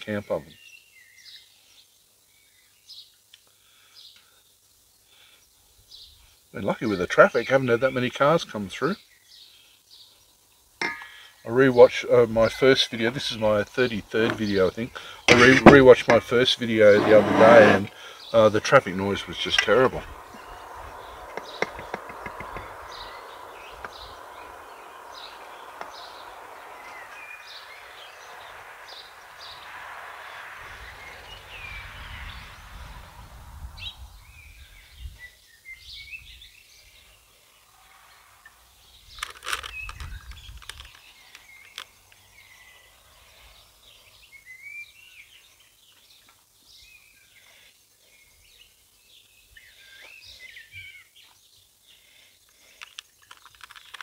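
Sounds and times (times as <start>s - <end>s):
birds chirping: 5.2s - 54.0s
steady rushing noise: 18.6s - 34.6s.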